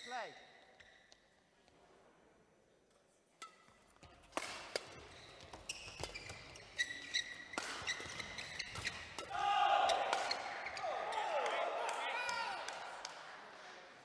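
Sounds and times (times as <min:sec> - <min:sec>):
racket hitting shuttlecock: 0:03.4 - 0:10.8
shoes squeaking on court: 0:04.7 - 0:09.3.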